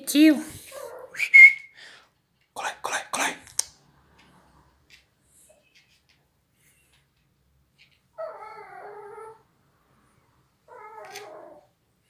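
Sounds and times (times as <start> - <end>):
dog whining: 8.1 - 9.5, 10.7 - 11.8.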